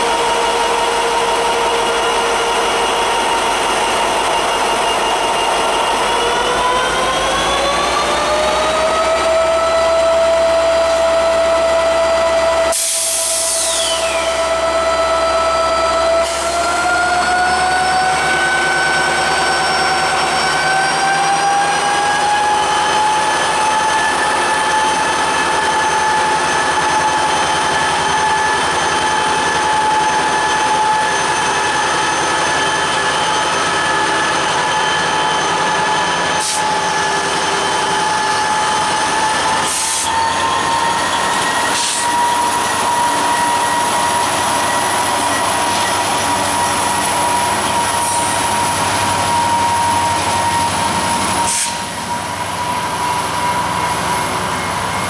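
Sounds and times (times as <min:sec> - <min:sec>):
freight train rumbling past: 0:00.0 - 0:55.0
high-pitched wheel squeal: 0:13.1 - 0:55.0.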